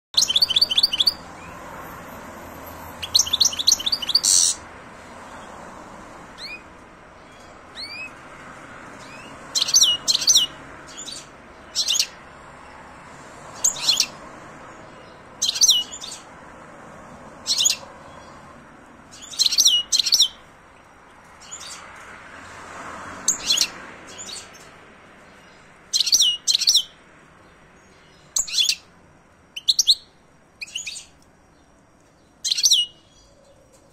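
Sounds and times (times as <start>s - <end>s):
bird twittering song: 0.1s - 1.6s, 2.8s - 4.7s, 6.4s - 8.2s, 9.0s - 12.2s, 13.5s - 16.3s, 17.4s - 18.4s, 19.1s - 20.5s, 21.4s - 21.9s, 23.3s - 28.9s, 29.5s - 33.9s.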